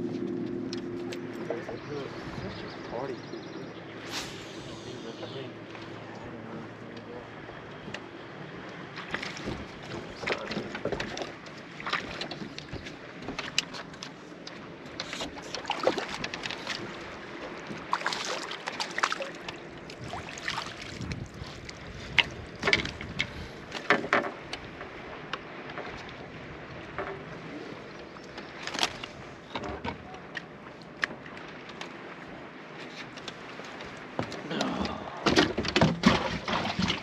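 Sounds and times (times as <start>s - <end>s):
water lapping against boat hull: 0.0s - 37.0s
knocks and clatters on boat deck: 8.9s - 20.1s, 21.0s - 27.5s, 28.3s - 32.0s, 32.8s - 37.0s.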